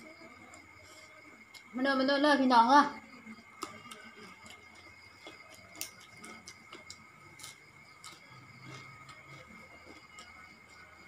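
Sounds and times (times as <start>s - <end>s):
person chewing crunchy salad: 3.6s - 11.0s.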